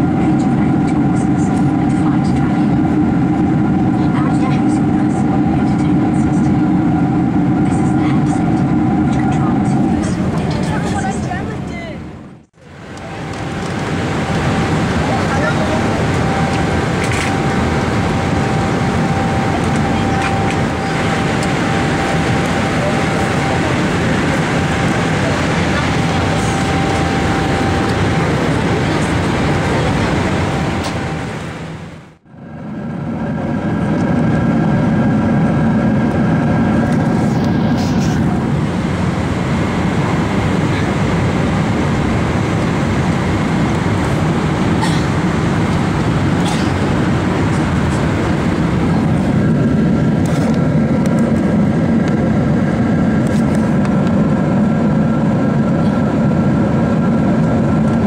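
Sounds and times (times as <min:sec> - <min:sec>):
airliner cabin drone: 0:00.0 - 0:58.0
faint steady tones: 0:12.6 - 0:31.9.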